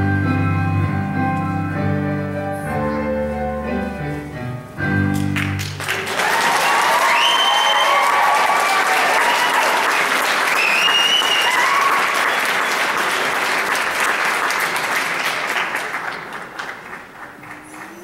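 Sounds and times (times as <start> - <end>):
audience applauding: 5.1 - 18.0
shrill cheers: 6.1 - 12.8.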